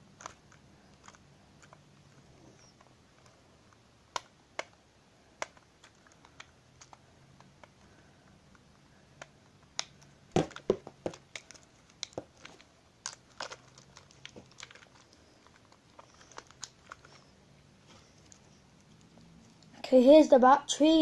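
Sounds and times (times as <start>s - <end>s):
plastic toy car clicks and rattles: 5.4s - 7.8s.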